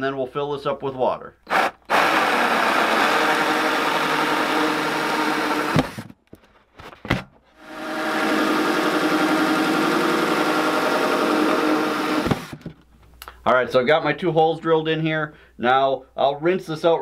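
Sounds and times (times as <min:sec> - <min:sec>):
power drill cutting plastic: 0:01.5 - 0:06.1, 0:07.6 - 0:12.7.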